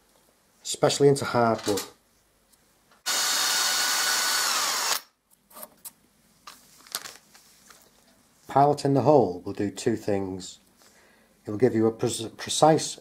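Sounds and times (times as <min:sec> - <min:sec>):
power drill whining: 0:03.1 - 0:05.1.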